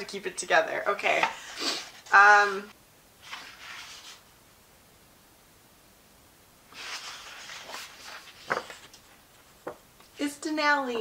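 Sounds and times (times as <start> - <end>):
woman sniffing: 1.4 - 2.0.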